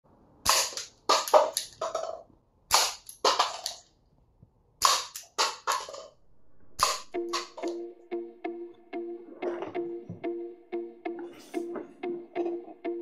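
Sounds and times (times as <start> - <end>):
toy gun firing pops: 0.4 - 1.8, 2.7 - 3.8, 4.8 - 6.0, 6.8 - 7.7.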